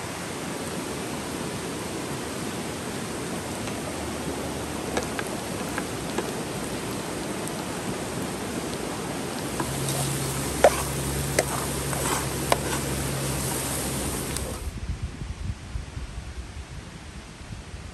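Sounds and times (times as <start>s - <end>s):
stream rushing: 0.0s - 14.8s
metal ladle clinking and scraping: 9.6s - 14.6s.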